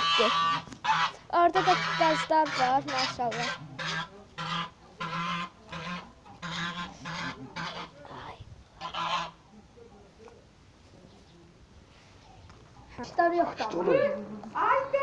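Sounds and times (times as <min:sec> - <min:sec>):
geese honking: 0:00.0 - 0:08.2, 0:08.8 - 0:09.4, 0:13.4 - 0:15.0.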